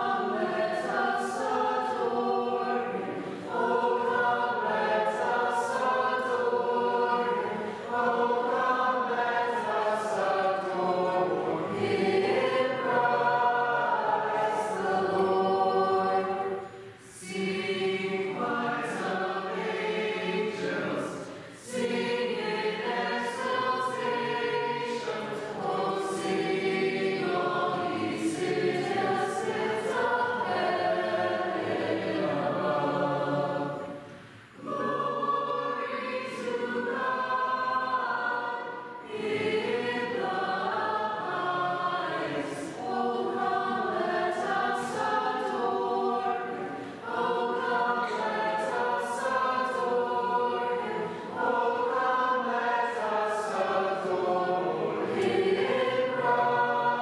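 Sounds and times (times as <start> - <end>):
choir singing in parts: 0.0 - 57.0.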